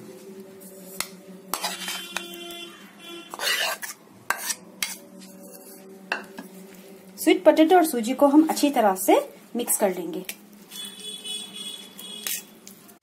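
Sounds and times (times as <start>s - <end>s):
spoon scraping: 0.6s - 6.8s, 11.9s - 12.8s.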